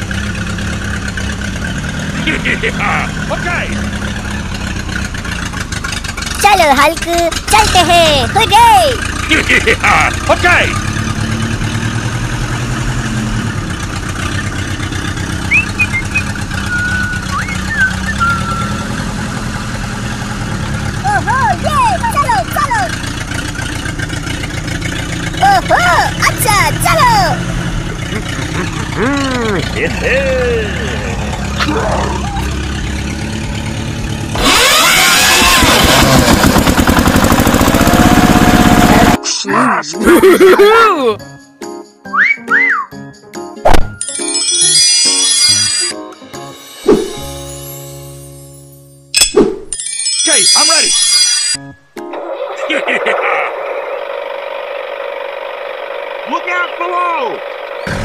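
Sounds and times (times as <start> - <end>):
tractor engine idling: 0.0 - 39.2, 52.0 - 58.0
high bird chirps: 15.4 - 19.2
toy engine sound effect: 15.4 - 19.4, 21.0 - 23.2, 25.4 - 27.5, 44.0 - 46.0, 49.2 - 58.0.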